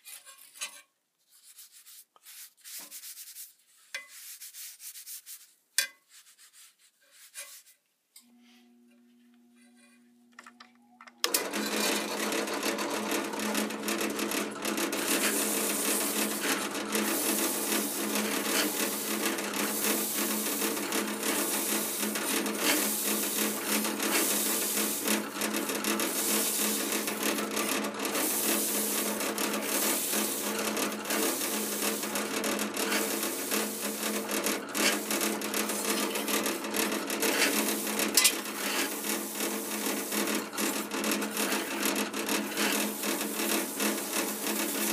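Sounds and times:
sanding disc grinding steel: 13.5s - 44.9s.

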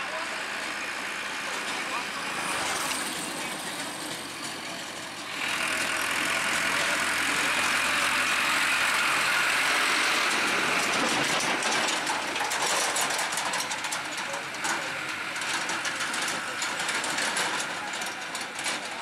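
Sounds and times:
tractor diesel engine driving past: 0.0s - 19.0s.

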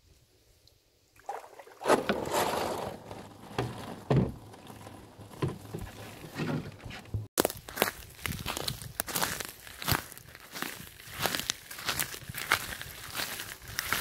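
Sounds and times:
canoe hull scraping over gravel: 1.3s - 7.9s
knocks and thumps against hull: 1.8s - 7.3s.

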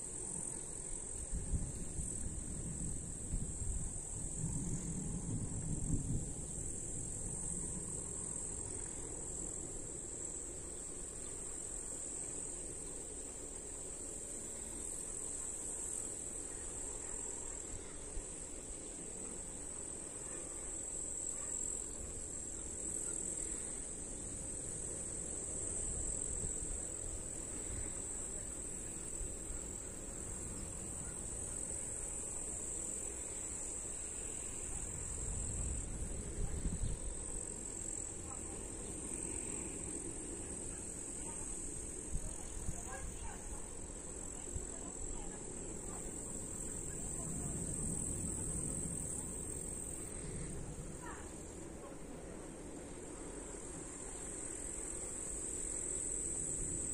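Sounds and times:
crickets chirring: 0.0s - 56.9s
wind buffeting microphone: 1.2s - 8.1s, 34.7s - 37.8s.

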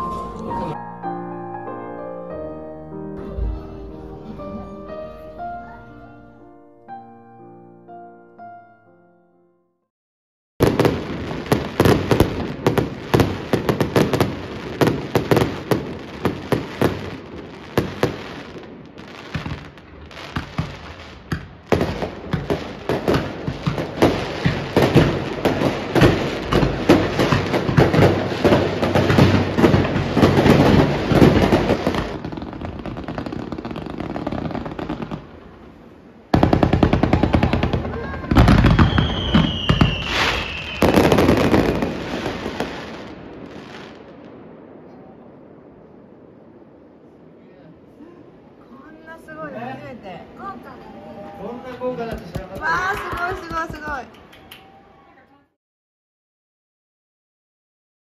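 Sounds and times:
fireworks bangs and crackling: 10.6s - 54.8s.

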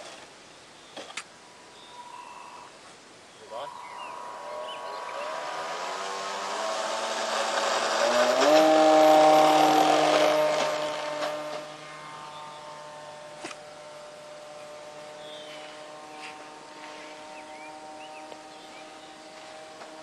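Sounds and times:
electric motor propeller whine: 3.6s - 20.0s.

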